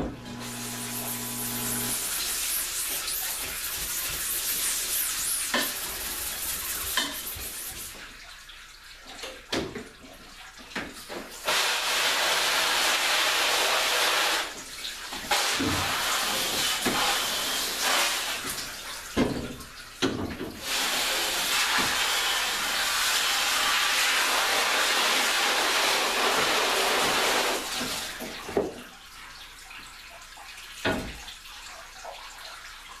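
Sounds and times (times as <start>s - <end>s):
hose spraying water on mesh: 0.3s - 8.0s, 11.4s - 19.1s, 20.6s - 28.4s.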